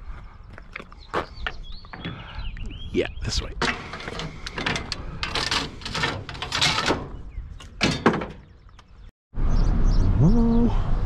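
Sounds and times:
junk scraping and knocking: 3.4s - 9.1s.

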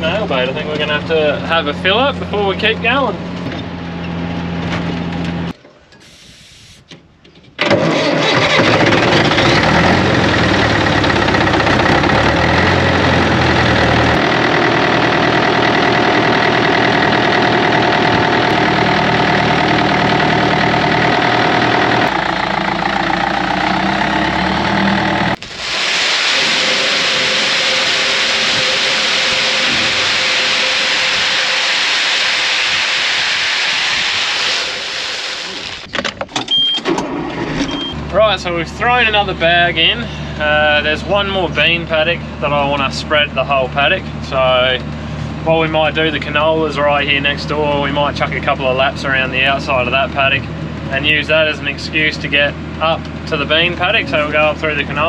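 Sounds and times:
tractor engine running: 7.6s - 55.0s
pellets pouring into metal bin: 25.4s - 35.8s.

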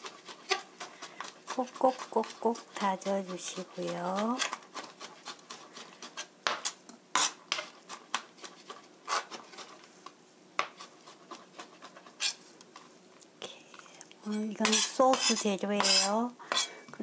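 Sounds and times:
knife chopping on cutting board: 14.6s - 16.7s.

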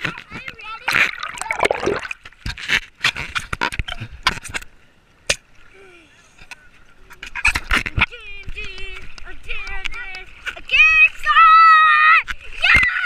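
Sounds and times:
water sloshing: 0.0s - 2.8s.

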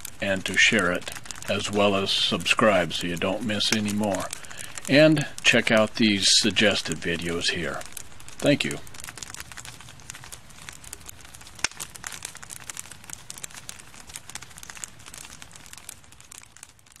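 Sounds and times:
campfire crackling: 0.0s - 17.0s
loud fire snap: 0.0s - 17.0s.

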